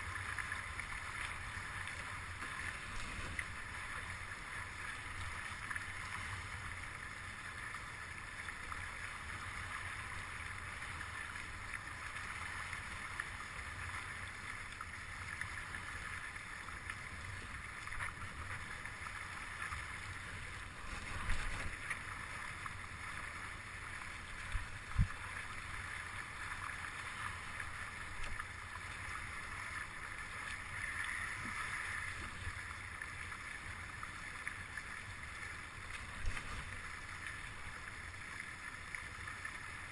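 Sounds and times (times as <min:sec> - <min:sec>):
water rushing along hulls: 0:00.0 - 0:39.9
wind rumble on microphone: 0:24.3 - 0:25.3.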